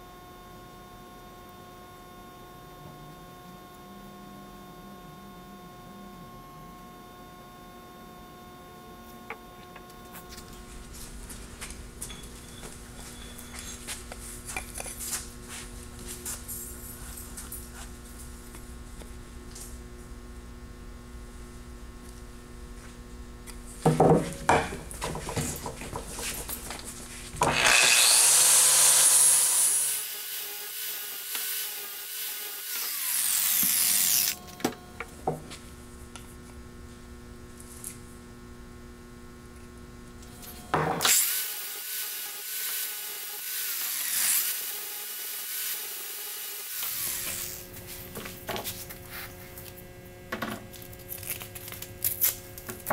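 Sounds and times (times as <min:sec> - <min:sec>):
angle grinder sanding wood: 0:26.0 - 0:34.4, 0:41.2 - 0:49.5.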